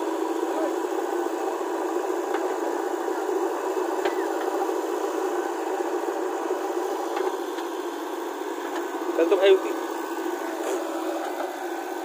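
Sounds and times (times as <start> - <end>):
diesel engine droning: 0.0 - 12.0.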